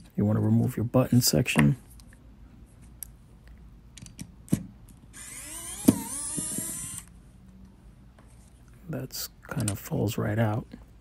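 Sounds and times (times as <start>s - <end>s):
electric screwdriver whining: 5.1s - 7.1s.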